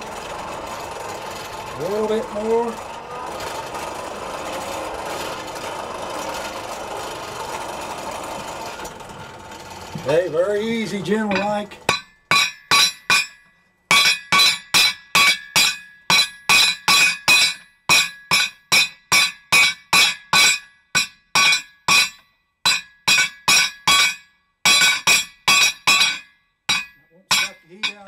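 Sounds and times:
hammer striking steel on anvil: 11.3 - 28.0.

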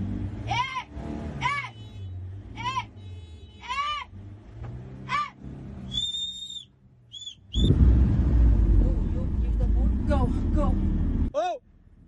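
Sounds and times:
short high-pitched calls: 5.9 - 7.7
thin whistle-like tone: 5.9 - 7.7
jeep engine rumble: 6.9 - 12.0.

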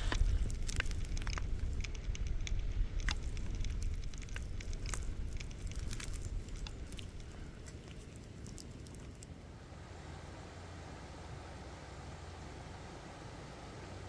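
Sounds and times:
wood fire crackling: 0.0 - 9.6
low rumble: 0.0 - 13.7.

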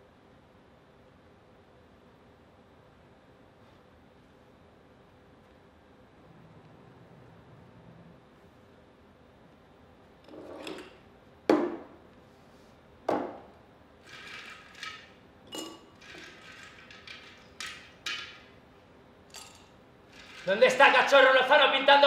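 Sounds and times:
knocks on a table: 11.5 - 11.9, 13.1 - 13.4
glassware clinking: 14.4 - 18.5, 19.3 - 20.5.

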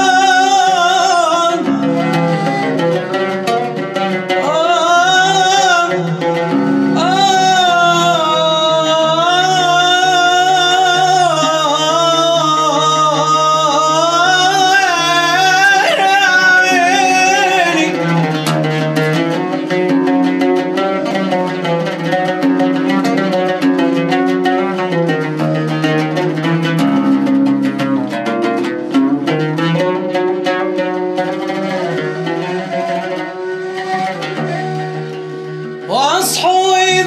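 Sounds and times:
man singing ornamented phrases: 0.0 - 2.4, 4.3 - 18.5, 35.8 - 37.0
plucked strings: 0.0 - 37.0.

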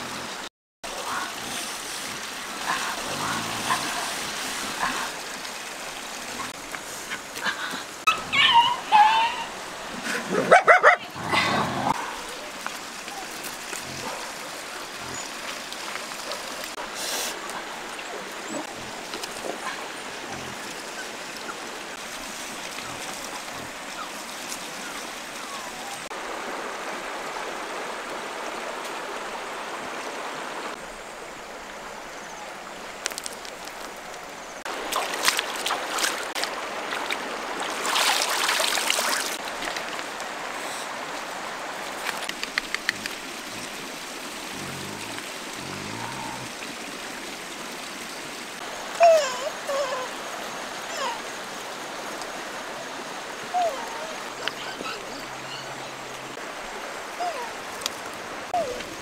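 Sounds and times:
river running over stones: 0.0 - 59.0
splashing in water: 33.0 - 47.4.

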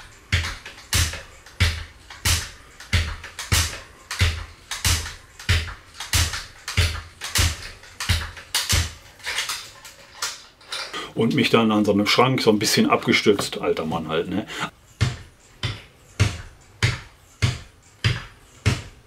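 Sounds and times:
stepper pedals clacking: 0.0 - 10.9.

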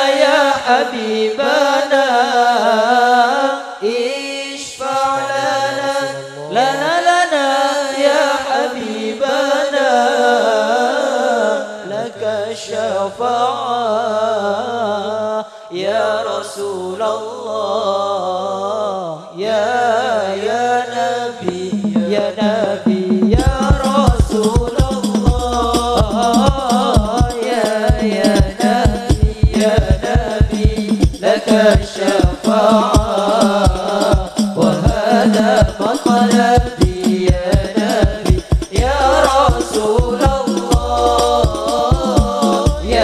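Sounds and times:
person singing devotional song: 0.0 - 43.0
drum beats: 21.4 - 43.0.

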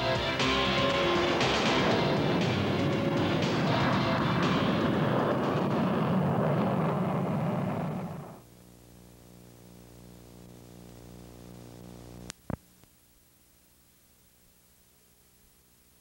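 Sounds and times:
loud rushing sound: 0.6 - 8.4
steady electrical hum: 0.6 - 16.0
faint hiss: 6.6 - 16.0.

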